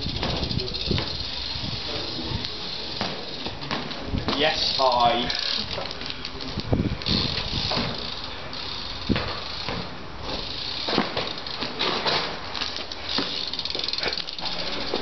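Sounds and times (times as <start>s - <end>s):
bike landing knocks: 0.0s - 1.3s, 2.8s - 6.1s, 7.0s - 8.3s, 9.0s - 15.0s
bike rolling on tarmac: 0.0s - 15.0s.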